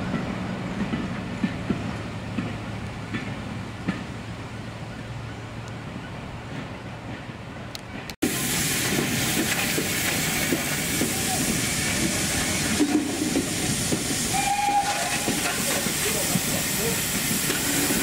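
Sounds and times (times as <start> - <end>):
train coaches rumbling over track: 0.0 - 18.0
steam hissing: 8.2 - 18.0.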